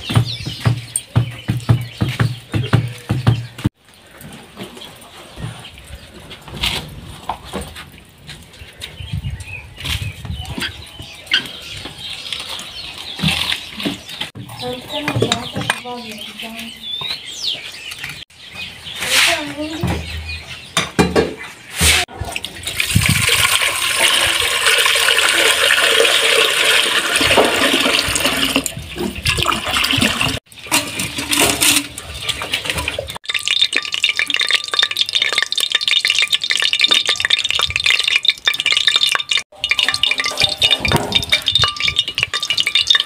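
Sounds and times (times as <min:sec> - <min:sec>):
water running and splashing: 0:12.0 - 0:14.4, 0:22.1 - 0:43.0.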